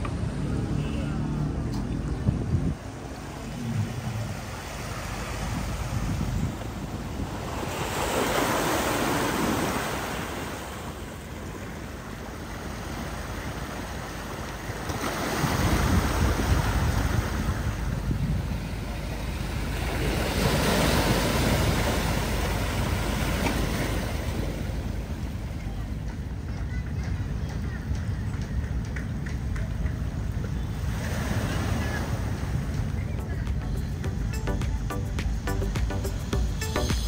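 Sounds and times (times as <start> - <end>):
wind buffeting microphone: 1.5 - 7.9, 14.7 - 33.5.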